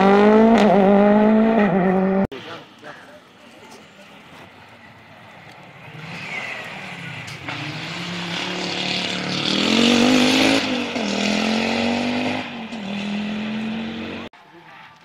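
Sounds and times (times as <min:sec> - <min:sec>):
rally car engine passing at speed: 0:00.0 - 0:02.3, 0:05.8 - 0:14.3.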